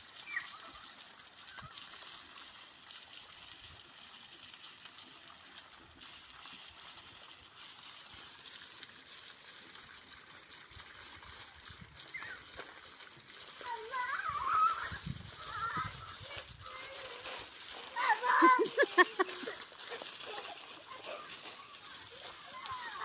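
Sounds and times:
small waterfall splashing: 0.0s - 23.0s.

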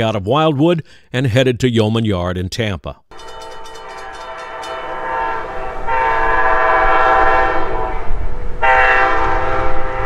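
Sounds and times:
train air horn blasts: 3.1s - 10.0s
train low rumble: 3.1s - 10.0s.

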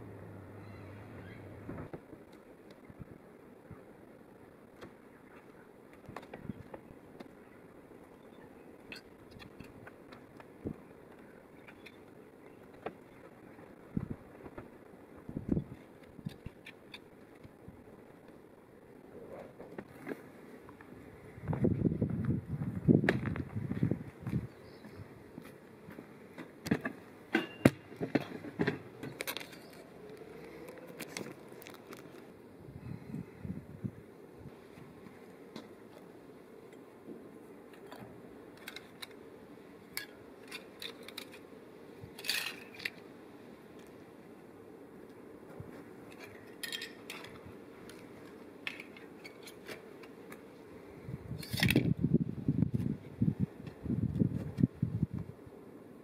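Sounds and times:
low background noise: 0.0s - 56.0s
metal clinks and scrapes: 42.2s - 43.0s, 46.1s - 47.4s.

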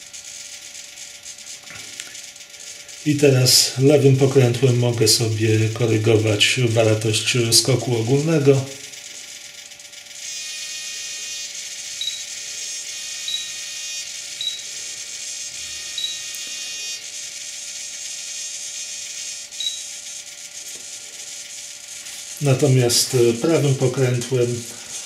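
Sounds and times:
servos whining and buzzing: 0.0s - 25.0s
short high beeps: 12.0s - 12.3s, 15.9s - 16.3s, 19.6s - 19.9s.

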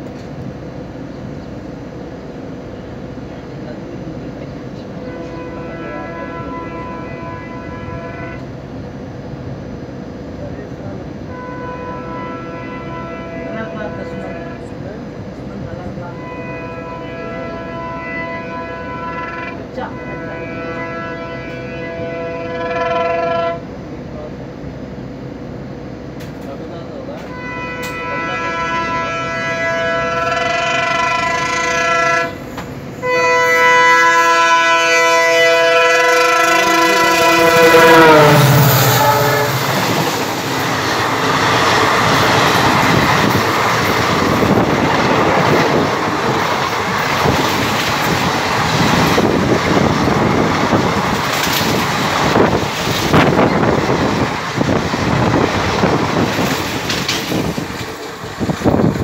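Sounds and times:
locomotive horn blasts: 5.0s - 8.5s, 11.3s - 14.8s, 16.1s - 23.7s, 27.2s - 47.3s
train coaches rushing past: 26.2s - 59.0s.

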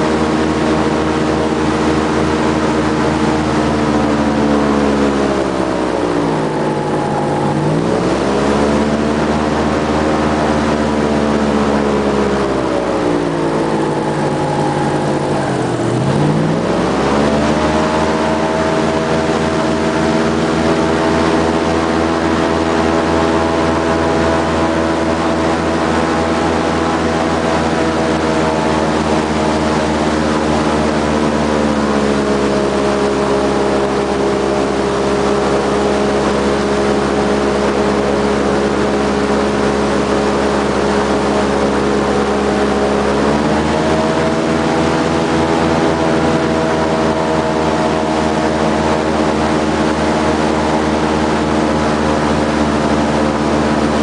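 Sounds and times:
airboat engine and propeller: 0.0s - 54.0s.

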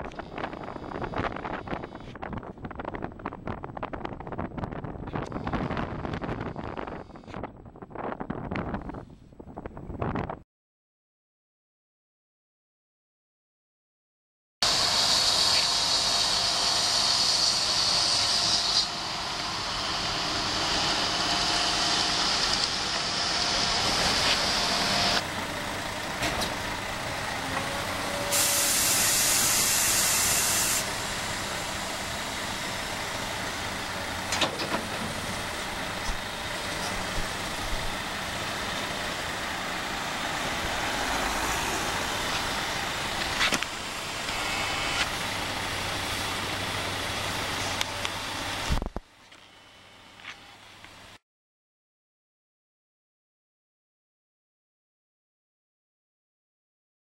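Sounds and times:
excavator diesel engines running: 14.6s - 51.2s
loud hissing: 28.2s - 32.0s.

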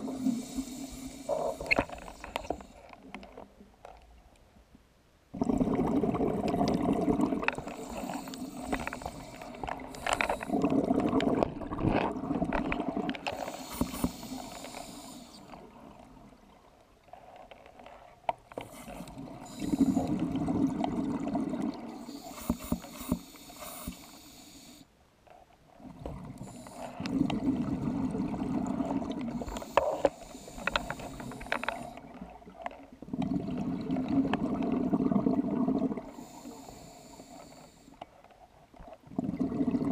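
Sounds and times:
regulator inhalation hiss: 0.0s - 2.8s, 7.6s - 10.6s, 13.3s - 15.5s, 18.7s - 20.1s, 22.0s - 24.9s, 29.3s - 32.0s, 36.1s - 38.0s
bubbling exhalations underwater: 5.4s - 8.0s, 10.4s - 13.3s, 19.7s - 22.0s, 27.0s - 29.3s, 33.1s - 36.1s, 39.1s - 39.9s.

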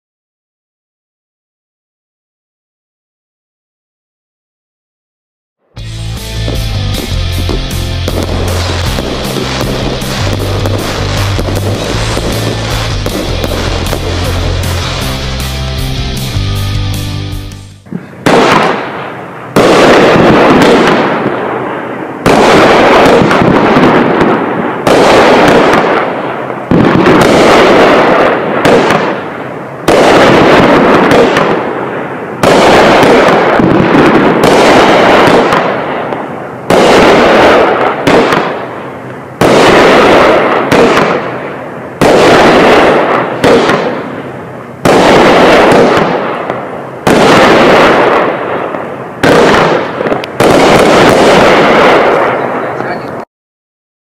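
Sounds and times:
firework hiss: 5.8s - 18.8s
firework cake bangs: 6.4s - 15.2s, 18.2s - 21.5s, 22.3s - 26.1s, 26.7s - 29.2s, 29.9s - 31.8s, 32.4s - 38.6s, 39.4s - 41.3s, 42.0s - 44.1s, 44.8s - 53.0s.

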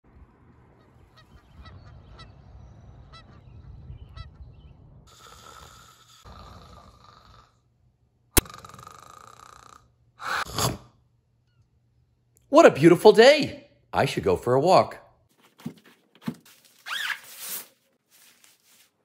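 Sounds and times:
low rumble: 0.0s - 5.1s
geese honking: 0.8s - 4.6s
man snoring: 5.1s - 7.7s, 8.4s - 10.8s.

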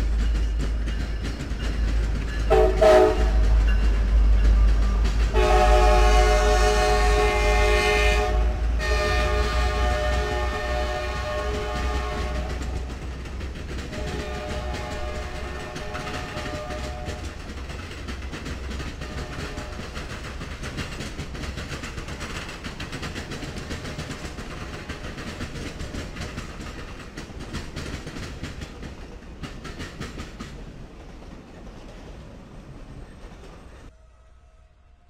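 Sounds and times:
train wheels clattering over rails: 0.0s - 33.9s.

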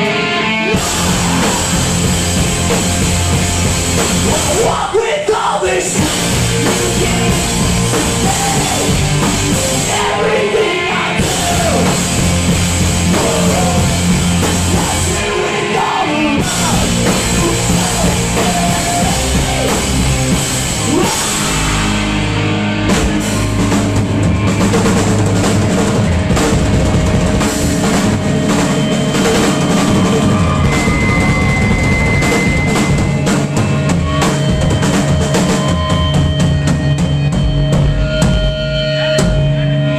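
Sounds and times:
punk rock band playing: 0.0s - 39.9s
shouted vocals: 9.6s - 12.1s, 13.0s - 20.0s, 20.8s - 21.8s.

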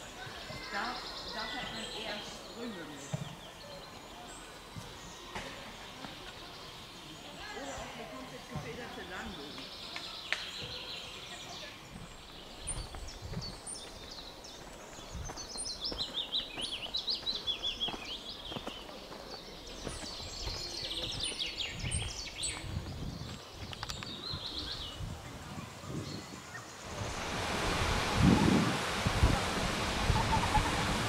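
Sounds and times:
songbirds singing: 0.0s - 27.1s
wind gusts on microphone: 11.8s - 14.1s, 20.2s - 31.0s.

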